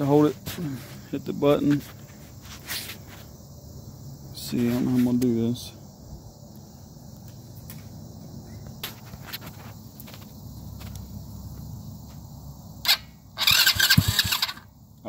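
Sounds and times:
electric starter turning engine: 12.8s - 14.7s.

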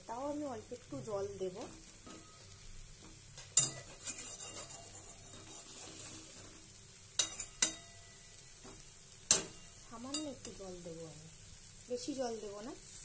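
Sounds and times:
low sizzle: 0.0s - 13.0s
metal spatula stirring in a pan: 0.8s - 13.0s.

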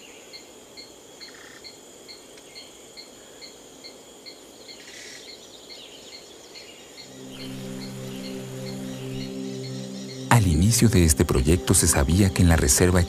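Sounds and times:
crickets chirping: 0.0s - 13.0s
high-pitched insect trill: 0.0s - 13.0s
low sustained music notes: 7.0s - 13.0s.

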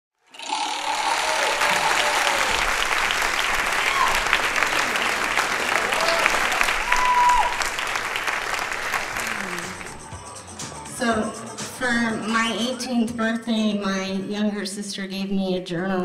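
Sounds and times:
audience applauding: 0.3s - 10.1s
audience cheering: 0.4s - 10.1s.

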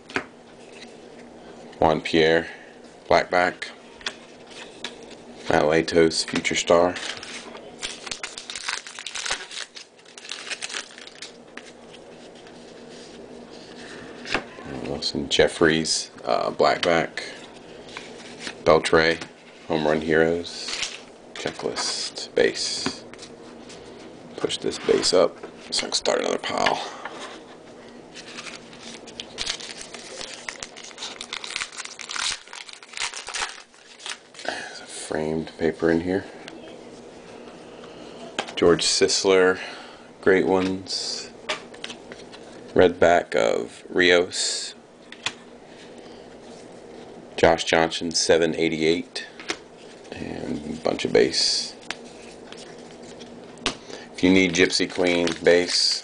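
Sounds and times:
wrapper crinkling and tearing: 7.0s - 11.8s, 28.2s - 34.5s.

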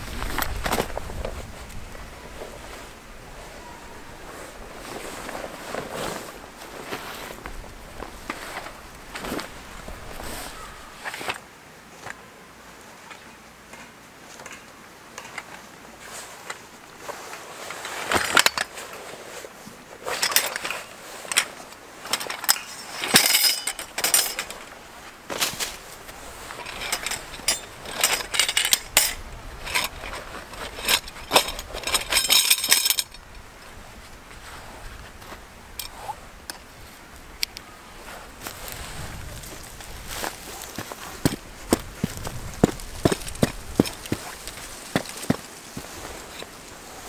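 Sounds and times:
metal tent poles clinking: 3.6s - 11.4s, 15.2s - 19.4s, 20.0s - 34.6s, 35.2s - 47.0s.

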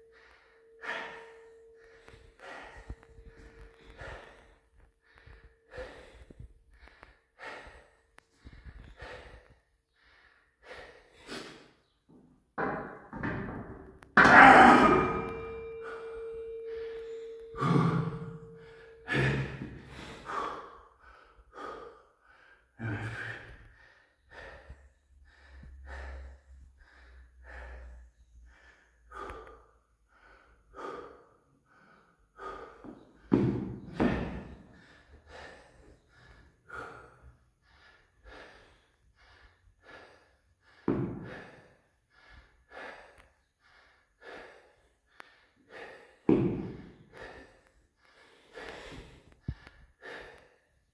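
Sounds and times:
man breathing hard: 0.0s - 12.0s, 14.8s - 50.9s.

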